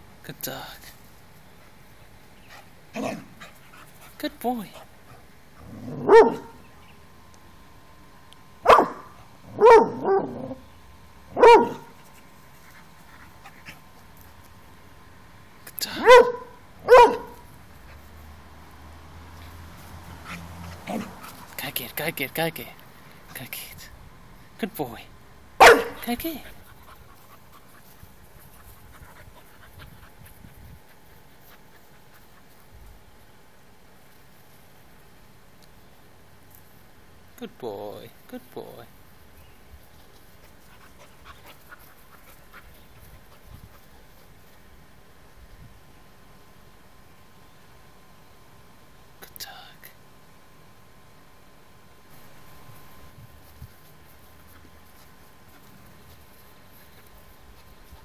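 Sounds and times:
puppy panting: 0:02.4 - 0:05.6, 0:11.8 - 0:14.5, 0:19.2 - 0:21.9, 0:25.7 - 0:32.9, 0:39.9 - 0:44.6, 0:53.9 - 0:58.0
puppy barking high-pitched: 0:05.9 - 0:06.6, 0:08.6 - 0:10.6, 0:11.3 - 0:12.0, 0:16.0 - 0:17.5, 0:25.6 - 0:26.1.

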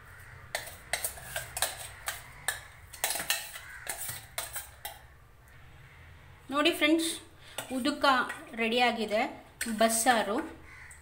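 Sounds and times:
spoon scraping steel jar: 0:00.5 - 0:05.1.

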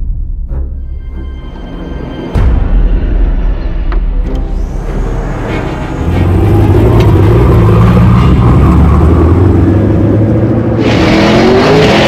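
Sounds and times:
car engine rumbling: 0:04.2 - 0:12.0.

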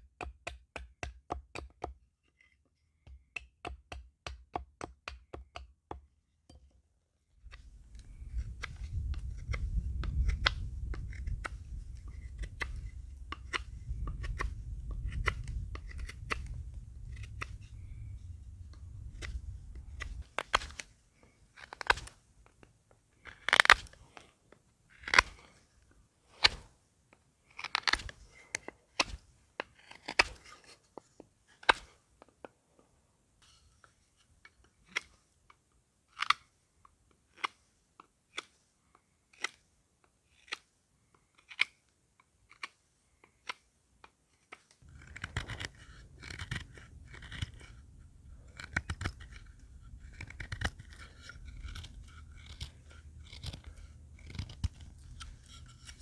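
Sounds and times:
knife slicing wood: 0:07.4 - 0:18.1, 0:18.8 - 0:20.9, 0:21.6 - 0:22.2, 0:23.2 - 0:24.0, 0:24.9 - 0:25.6, 0:26.3 - 0:26.7, 0:27.6 - 0:30.8, 0:31.6 - 0:32.0, 0:44.8 - 0:56.0
low rumble: 0:13.8 - 0:20.3.

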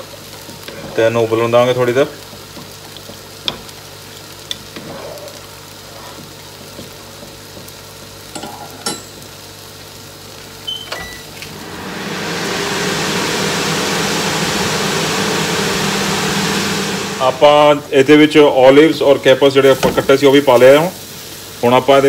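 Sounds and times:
noodles boiling in a pot: 0:00.0 - 0:10.7, 0:11.5 - 0:22.0
kitchenware clinking: 0:08.3 - 0:09.3
steady rushing noise: 0:11.4 - 0:18.2.

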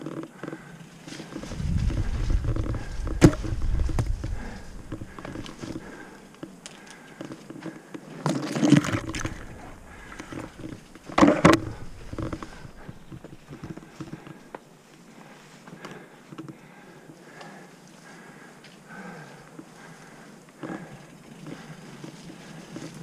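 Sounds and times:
bike tyres rolling on dirt: 0:00.0 - 0:23.0
bike rattling over bumps: 0:00.3 - 0:06.6, 0:07.2 - 0:14.5.

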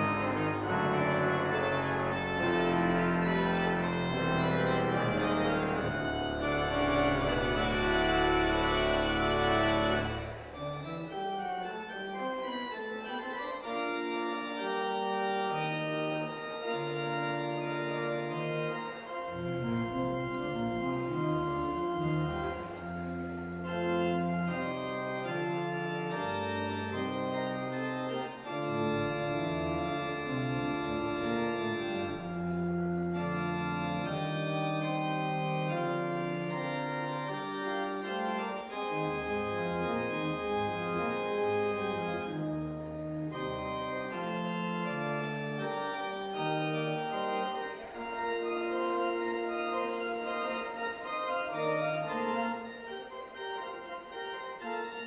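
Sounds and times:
low organ pedal bass: 0:00.0 - 0:55.0
pipe organ chords: 0:00.0 - 0:55.0.

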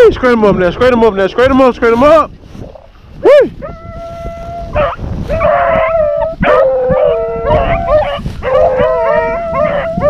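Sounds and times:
dogs baying and howling: 0:03.3 - 0:10.0.

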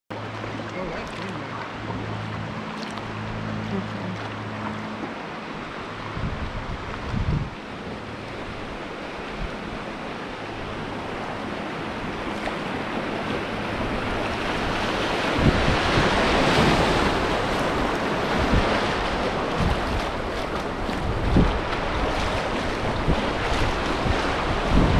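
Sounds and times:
wind rumbling on microphone: 0:00.1 - 0:24.9
river water rushing over rapids: 0:00.2 - 0:24.9.

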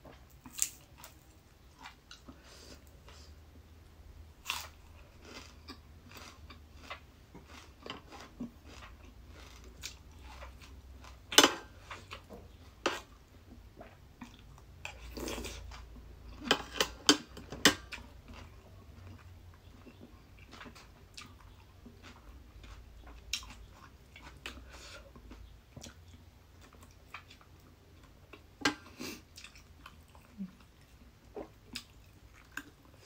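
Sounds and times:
crunchy chewing: 0:04.4 - 0:12.3, 0:17.8 - 0:33.0.

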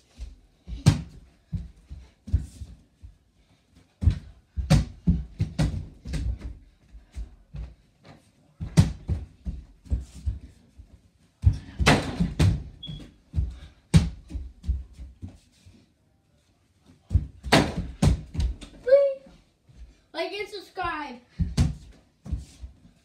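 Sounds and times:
ball bouncing on floor: 0:11.4 - 0:14.8, 0:17.1 - 0:18.7.

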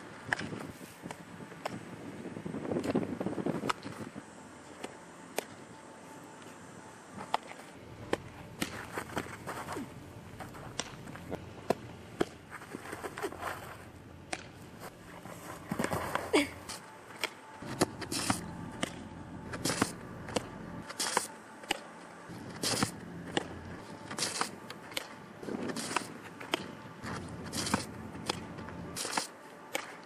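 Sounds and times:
cleats scuffing on dirt: 0:07.5 - 0:11.8, 0:12.4 - 0:13.9, 0:14.6 - 0:16.8.

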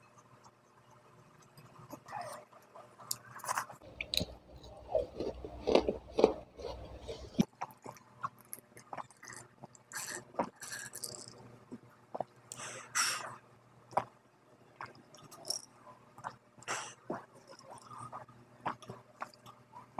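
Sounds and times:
chewing and smacking: 0:01.4 - 0:11.4, 0:14.8 - 0:15.6, 0:17.1 - 0:19.9
gulping and swallowing: 0:02.0 - 0:11.4
breathing: 0:12.5 - 0:13.4.

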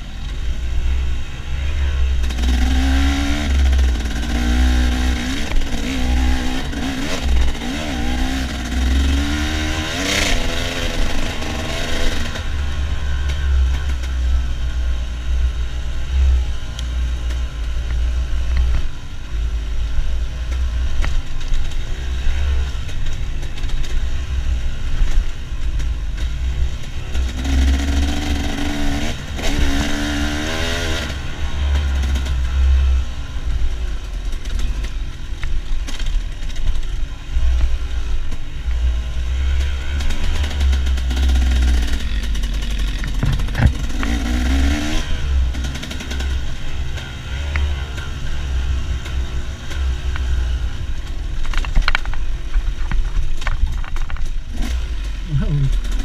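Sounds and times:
dirt bike engine revving: 0:01.6 - 0:17.3, 0:27.0 - 0:33.6, 0:38.8 - 0:52.0, 0:54.5 - 0:56.0
heavy low rumble: 0:36.6 - 0:56.0.

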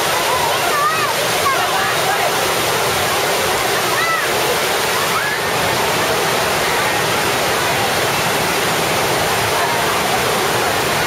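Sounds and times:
crowd voices: 0:00.0 - 0:11.0
waterfall and rapids roaring: 0:00.0 - 0:11.0.

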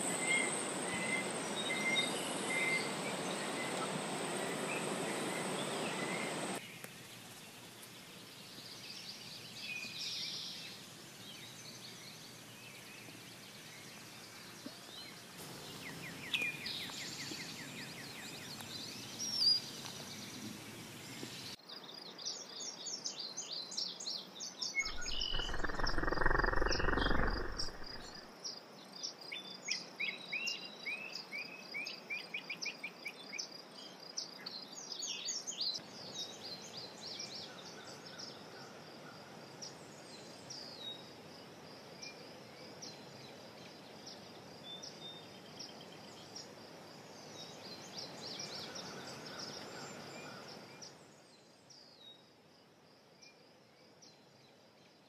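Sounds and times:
bird chirps: 0:24.6 - 0:28.3
high-pitched insect trill: 0:24.8 - 0:28.3
wind on microphone: 0:24.8 - 0:28.3.

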